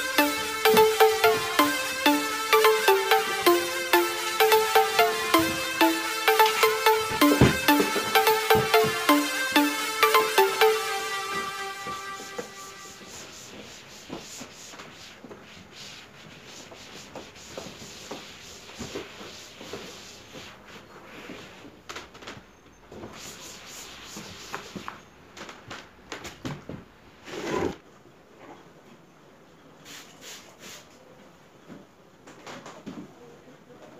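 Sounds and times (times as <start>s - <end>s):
scrubbing a window by hand: 13.0s - 21.6s, 23.0s - 25.0s.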